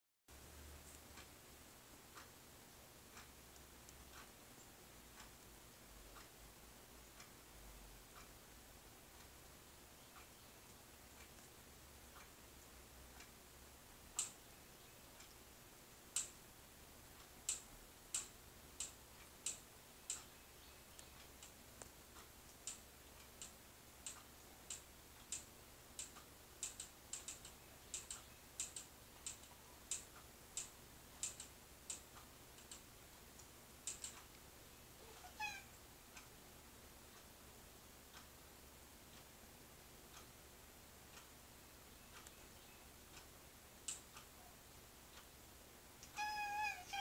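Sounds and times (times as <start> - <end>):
faint sharp clicks: 14.1 - 15.4, 16.1 - 16.4, 17.2 - 36.4, 41.1 - 44.4, 46.0 - 46.3
cat meow: 35.0 - 35.7, 46.2 - 47.0.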